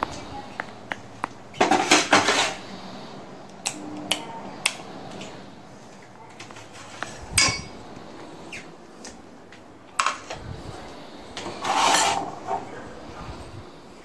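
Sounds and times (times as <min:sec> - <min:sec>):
metal kitchenware clicks and knocks: 0:07.4 - 0:07.7.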